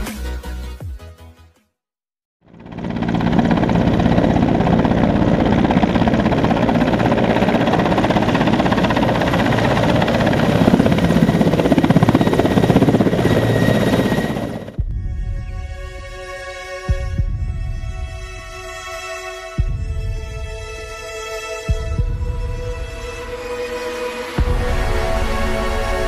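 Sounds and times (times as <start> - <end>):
helicopter rotor and turbines: 2.4 - 18.7.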